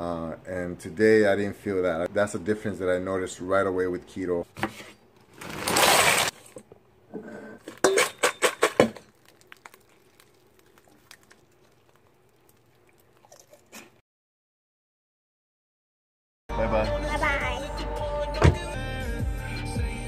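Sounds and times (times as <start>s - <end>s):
pork rinds rattling in metal pot: 7.6s - 9.9s.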